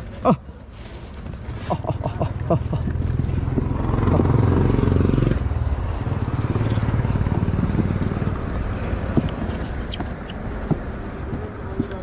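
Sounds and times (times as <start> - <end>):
vehicle engine running: 2.5 - 9.6
high squeak: 9.6 - 10.4.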